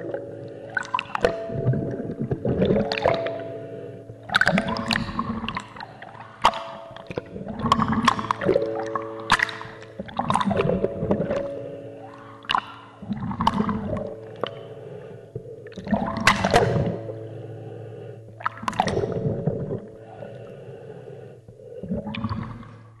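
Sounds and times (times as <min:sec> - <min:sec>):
steady low hum: 0:00.0 - 0:23.0
bath water sloshing and gurgling: 0:00.7 - 0:03.4, 0:04.2 - 0:11.6, 0:12.5 - 0:14.6, 0:15.6 - 0:17.1, 0:18.4 - 0:20.1.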